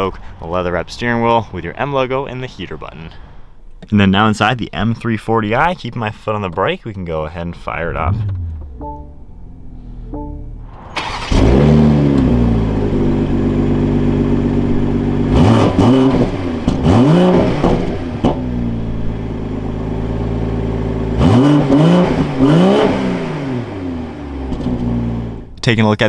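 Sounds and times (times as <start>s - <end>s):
car engine starting and idling: 7.3s - 25.6s
engine revving in throttle blips: 7.9s - 25.5s.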